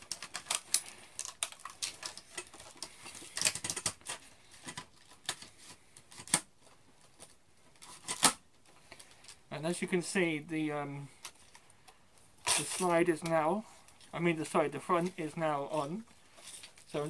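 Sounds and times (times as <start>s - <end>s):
plastic clicks and rattles: 0.0s - 9.4s.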